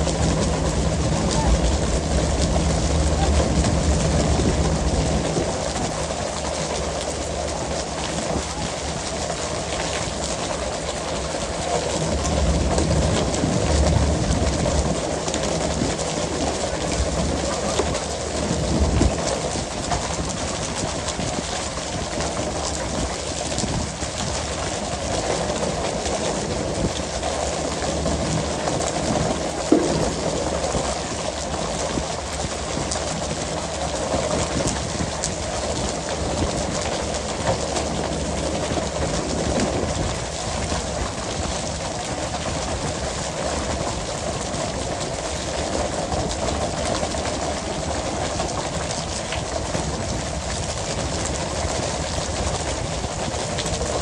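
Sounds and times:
boat engine running: 0.0s - 54.0s
fish thudding onto deck: 29.6s - 30.8s
poles knocking: 29.7s - 30.4s.

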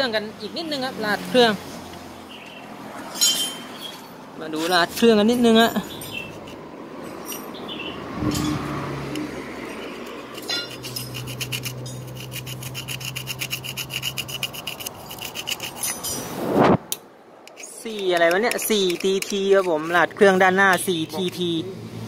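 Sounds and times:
tool scraping metal: 3.1s - 21.5s.

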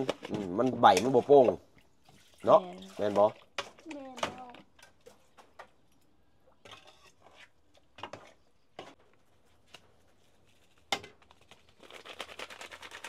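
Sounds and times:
metal ladle scraping a pot: 6.5s - 9.0s.

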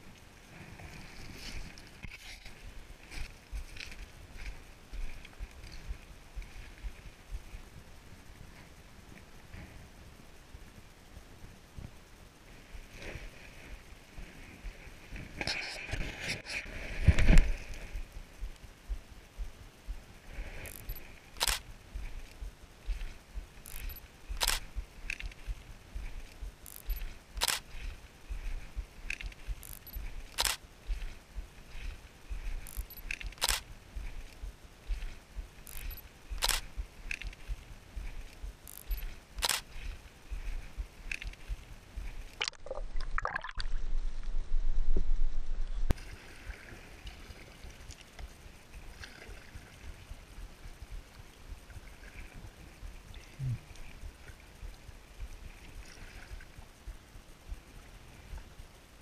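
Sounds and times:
faint background hiss: 0.0s - 59.0s
camera shutter clicks: 20.7s - 21.6s, 23.7s - 25.4s, 26.7s - 27.8s, 29.1s - 30.6s, 32.7s - 33.7s, 35.7s - 37.4s, 38.7s - 39.9s.

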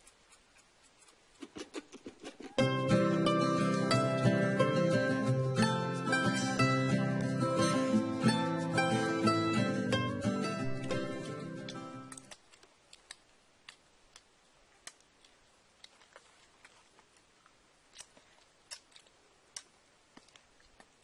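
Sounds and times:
acoustic guitar music: 2.5s - 12.2s
small clicks of handling food: 12.1s - 21.0s.

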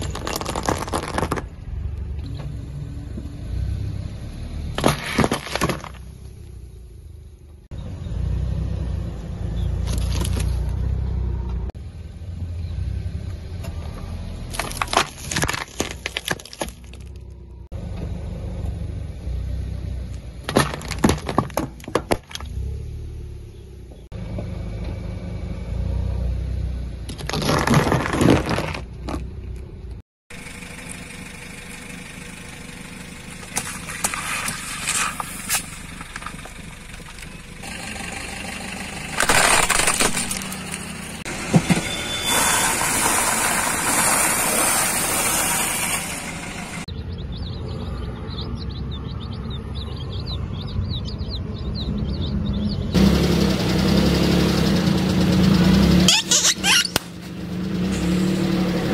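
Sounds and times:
objects cracking under tyre: 0.0s - 1.6s, 4.7s - 6.3s, 9.8s - 10.8s, 14.5s - 17.4s, 20.4s - 22.6s, 27.1s - 29.7s, 33.4s - 37.4s, 39.0s - 45.6s
car engine at low speed: 0.0s - 58.9s.

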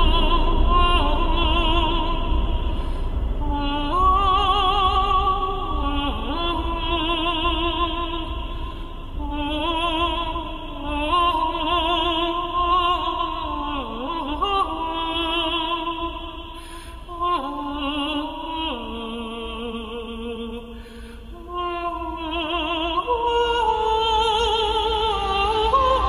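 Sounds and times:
operatic singing with vibrato: 0.0s - 26.0s.

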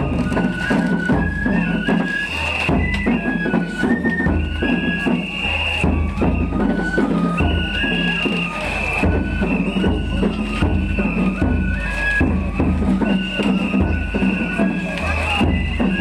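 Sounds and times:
high flute melody: 0.0s - 16.0s
steady drumming: 0.0s - 16.0s.

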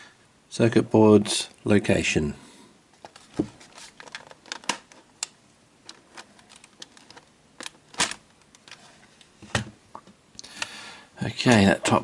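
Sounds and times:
plastic snapping: 4.0s - 8.8s.

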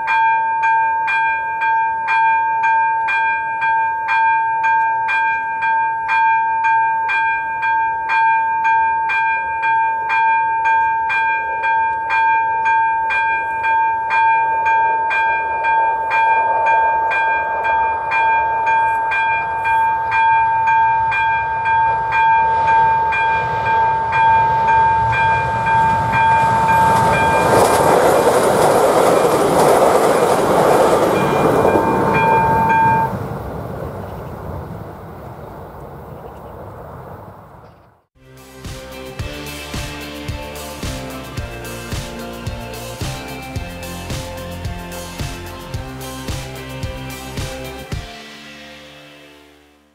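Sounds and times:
level-crossing warning bell: 0.0s - 33.3s
passing train rumble: 7.0s - 37.7s, 38.3s - 48.0s.

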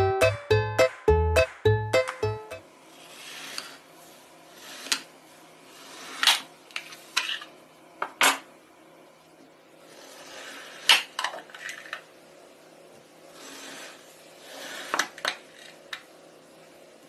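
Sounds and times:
sharp taps and clicks: 0.8s - 2.6s.

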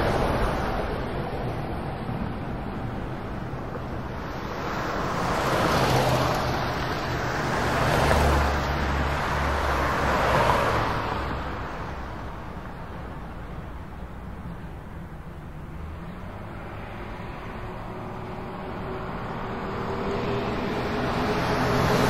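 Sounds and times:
low steady traffic hum: 0.0s - 22.0s
traffic rushing past: 0.0s - 22.0s.

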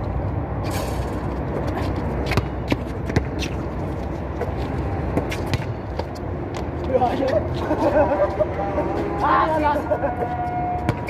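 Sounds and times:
basketball bouncing on concrete: 1.6s - 3.6s, 4.4s - 6.8s.

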